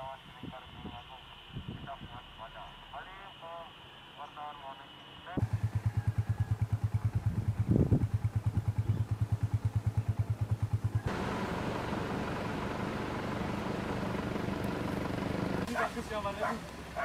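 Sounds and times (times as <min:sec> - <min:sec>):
engine hum with hiss: 0:00.0 - 0:17.0
engine pulsing rhythmically: 0:05.4 - 0:17.0.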